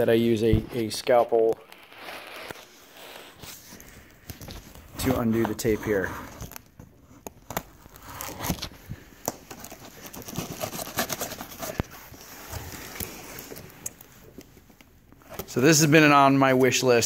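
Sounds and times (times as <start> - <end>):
packing tape crackling and tearing: 6.3 - 14.5.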